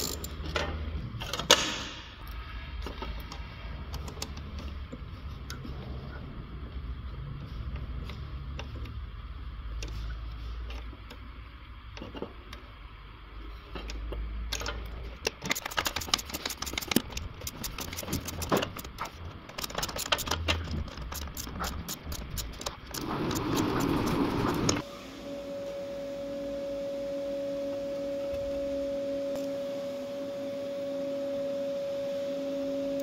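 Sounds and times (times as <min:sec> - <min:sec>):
ratchet clicking on bolts: 0:00.0 - 0:00.4, 0:14.5 - 0:24.2
low steady hum: 0:00.0 - 0:33.0.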